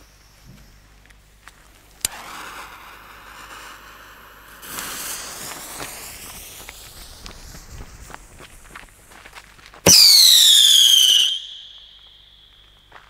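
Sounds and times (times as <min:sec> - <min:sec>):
fuse burning with spitting hiss: 0:01.6 - 0:09.1.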